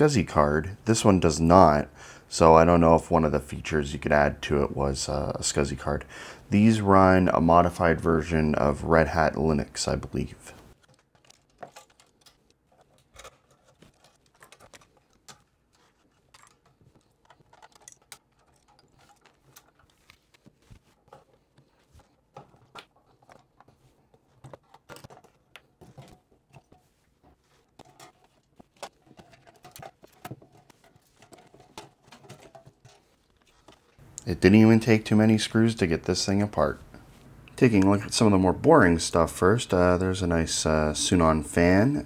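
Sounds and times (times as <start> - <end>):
metal parts being handled: 10.6 - 34.0.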